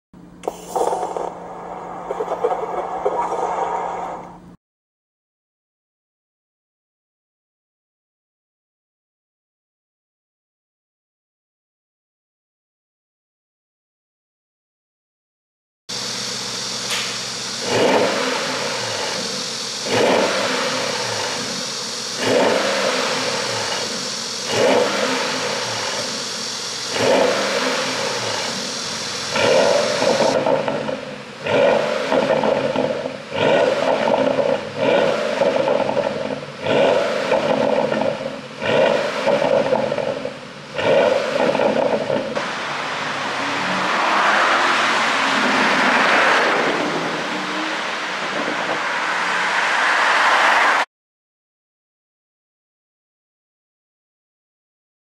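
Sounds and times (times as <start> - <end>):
car engine revving: 15.9 - 50.9.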